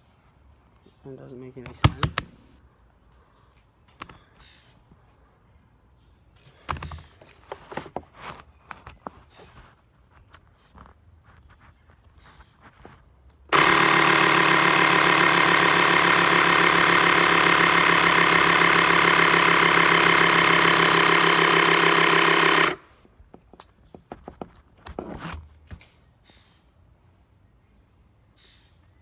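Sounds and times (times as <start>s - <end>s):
handling knocks: 1.6s - 2.4s
electric air compressor buzzing: 13.5s - 22.9s.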